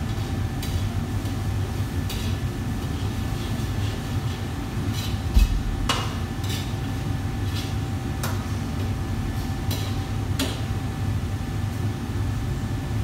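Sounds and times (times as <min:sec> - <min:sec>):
utensil clanking against wok: 0:00.0 - 0:08.9, 0:09.6 - 0:10.7
gas burners and ventilation rumble: 0:00.0 - 0:13.0.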